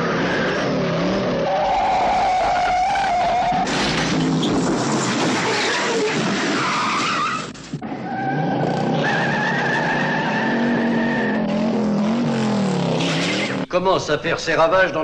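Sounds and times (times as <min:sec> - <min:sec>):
car engines revving hard: 0:00.0 - 0:05.5, 0:07.8 - 0:13.7
tyres squealing and skidding: 0:00.0 - 0:13.7.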